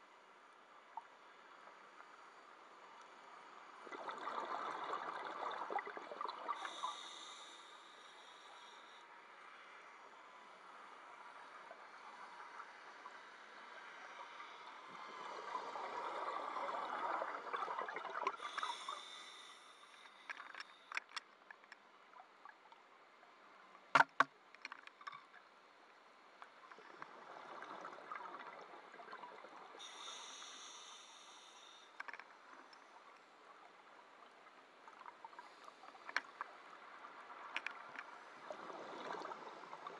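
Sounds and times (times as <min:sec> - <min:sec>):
exhaled bubbles underwater: 0:03.8 - 0:07.1, 0:14.9 - 0:19.1
regulator inhale hiss: 0:06.5 - 0:09.8, 0:18.3 - 0:21.0, 0:29.8 - 0:32.2
small clicks: 0:19.9 - 0:21.8, 0:31.9 - 0:32.8.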